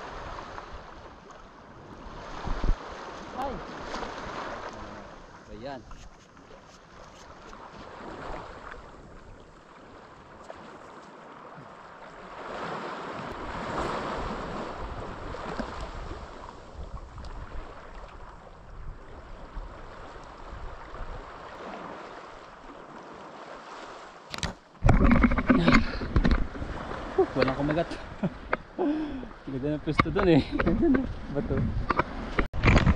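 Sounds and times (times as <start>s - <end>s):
wind rumbling on microphone: 0.0s - 10.8s, 12.2s - 22.7s, 24.4s - 32.9s
waves washing over rocky shore: 1.8s - 5.8s, 11.6s - 17.9s.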